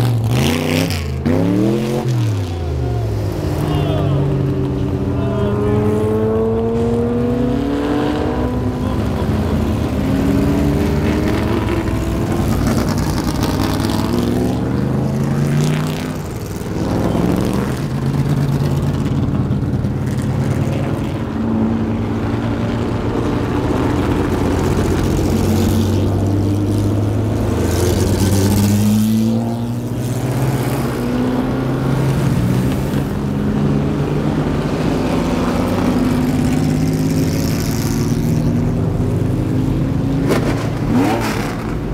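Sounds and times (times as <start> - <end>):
race car engines accelerating past: 0.0 - 41.9.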